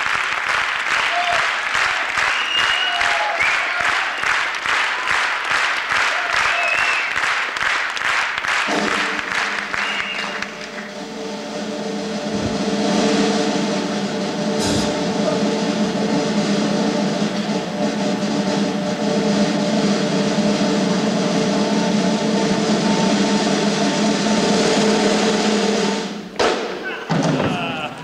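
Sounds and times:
audience applause: 0.0s - 11.2s, 27.3s - 28.0s
whistles: 2.2s - 4.5s, 6.4s - 7.3s, 9.5s - 10.9s
music with long held tones: 8.6s - 26.4s
low thumps: 8.7s - 18.8s.

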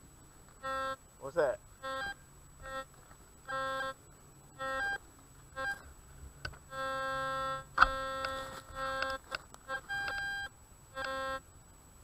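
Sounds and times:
metal detector beeps: 0.6s - 1.0s, 1.8s - 2.9s, 3.5s - 4.0s, 4.6s - 5.0s, 5.6s - 5.8s, 6.7s - 11.4s
metal detector held tone: 1.8s - 2.9s, 4.6s - 5.0s, 5.6s - 5.8s, 6.7s - 11.4s.

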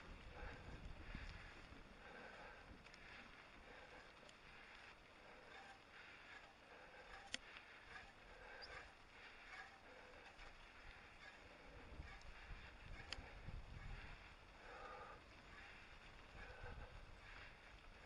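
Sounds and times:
small ticks and clicks: 0.0s - 18.0s.

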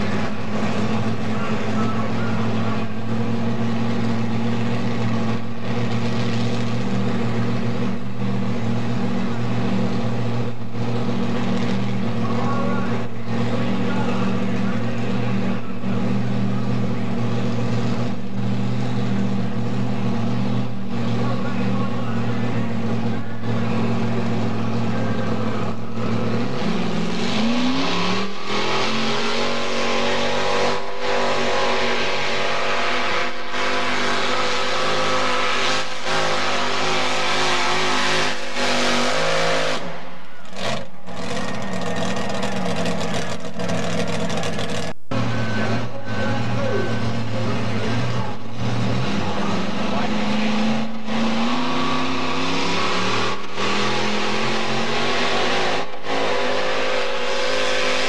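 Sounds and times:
tractor engine running loudly: 0.0s - 58.0s.

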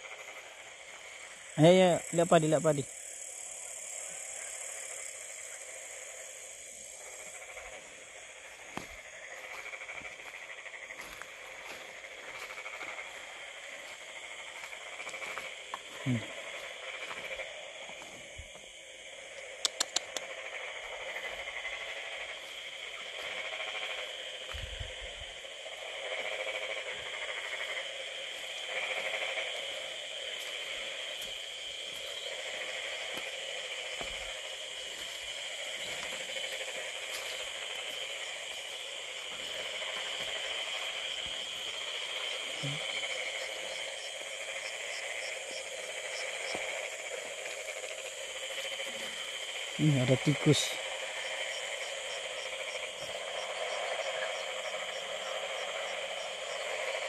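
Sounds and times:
frogs trilling: 0.0s - 57.0s
insects chirping: 0.0s - 57.0s
sharp clicks: 19.4s - 20.3s.

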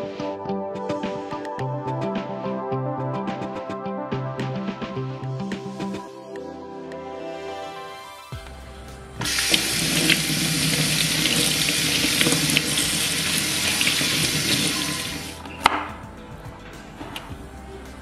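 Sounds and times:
tap water splashing into sink: 9.2s - 15.8s.

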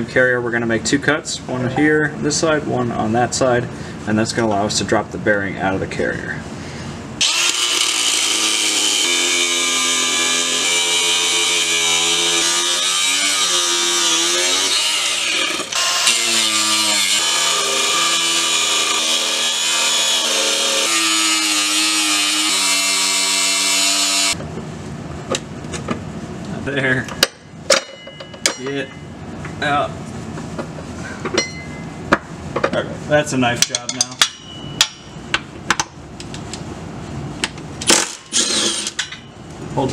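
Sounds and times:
angle grinder cutting steel: 7.2s - 24.4s, 38.0s - 39.1s.

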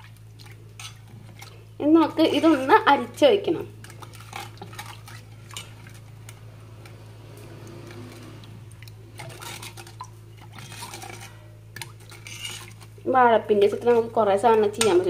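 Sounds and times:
spoon stirring liquid in pot: 0.0s - 13.0s, 13.6s - 15.0s.

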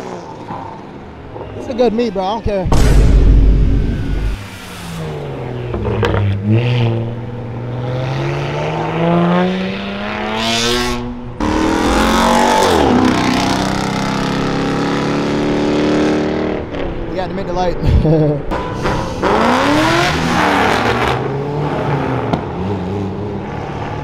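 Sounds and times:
car engines accelerating: 0.0s - 24.0s.

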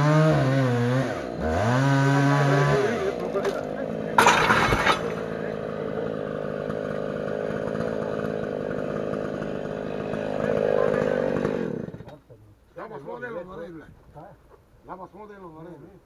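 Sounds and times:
chainsaw running: 0.0s - 12.2s
tree crashing onto metal: 4.2s - 5.3s.

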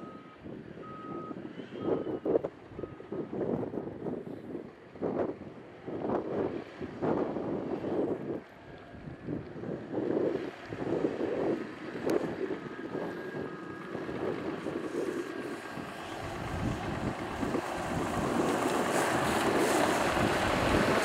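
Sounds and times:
wind buffeting microphone: 0.4s - 21.0s
diesel truck engine running: 10.0s - 21.0s
tyres rolling on gravel: 14.4s - 21.0s.

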